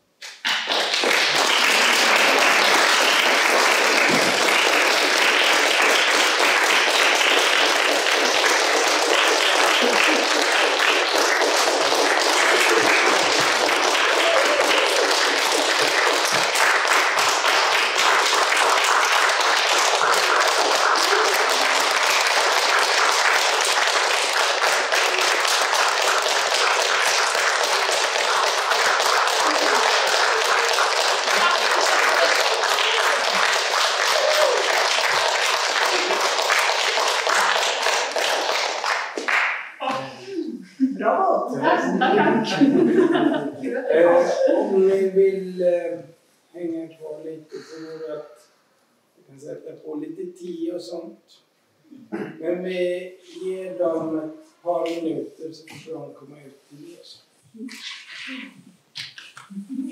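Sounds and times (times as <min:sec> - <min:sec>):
audience applauding: 0:00.3 - 0:40.0.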